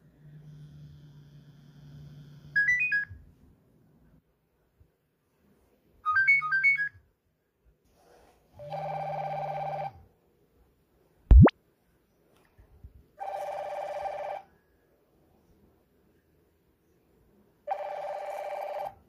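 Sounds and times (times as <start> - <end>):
monophonic phone ringtone: 8.7 - 9.9, 13.2 - 14.4, 17.7 - 19.0.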